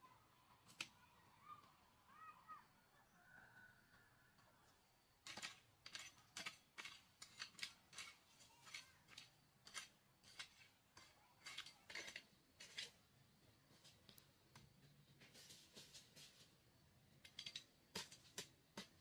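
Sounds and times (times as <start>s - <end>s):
metal hoe scraping stony soil: 5.2s - 13.1s, 15.2s - 16.6s, 17.2s - 19.0s.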